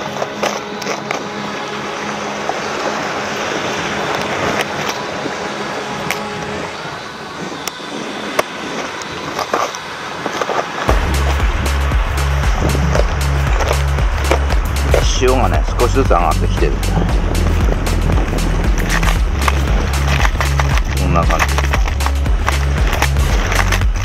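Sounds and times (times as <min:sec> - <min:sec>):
shallow waves washing: 0:00.0 - 0:24.0
plastic tackle box clicks: 0:18.8 - 0:24.0.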